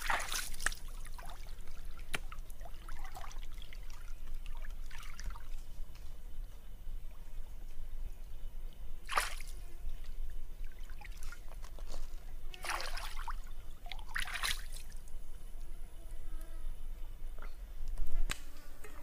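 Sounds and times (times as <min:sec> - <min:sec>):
water splashing and trickling: 0:00.0 - 0:06.0, 0:09.0 - 0:15.3.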